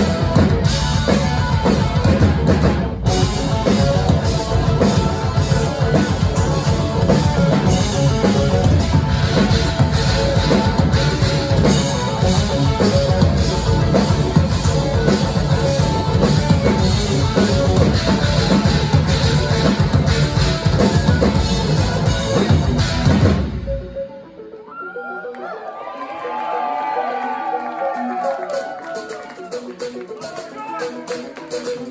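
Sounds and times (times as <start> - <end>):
live metal band playing: 0.0 - 24.0.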